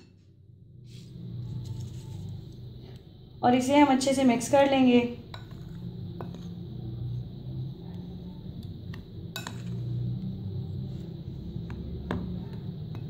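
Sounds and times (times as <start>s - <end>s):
low steady hum: 0.0s - 13.0s
metal spoon stirring flour: 5.2s - 10.2s.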